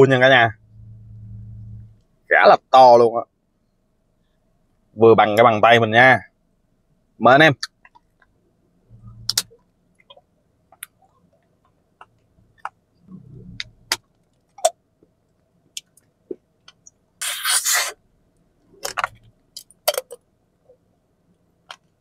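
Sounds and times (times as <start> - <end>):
loud slurp: 17.2 - 18.0.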